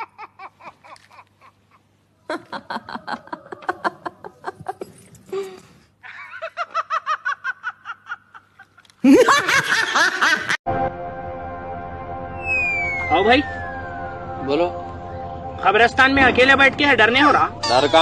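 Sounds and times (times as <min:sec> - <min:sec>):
person giggling: 0:00.0 - 0:10.6.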